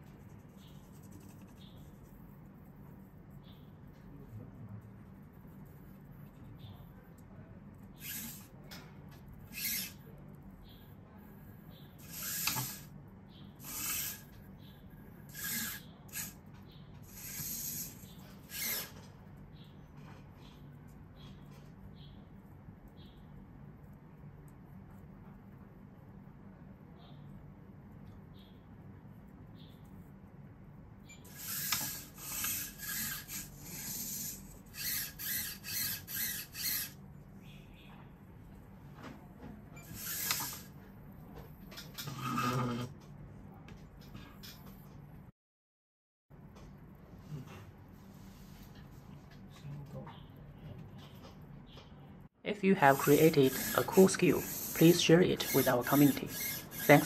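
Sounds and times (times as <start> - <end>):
robot servos whirring: 8.0 - 8.5, 9.5 - 10.0, 12.0 - 12.9, 13.6 - 14.3, 15.3 - 16.4, 17.0 - 19.0, 31.3 - 37.0, 39.8 - 40.8, 52.9 - 57.0.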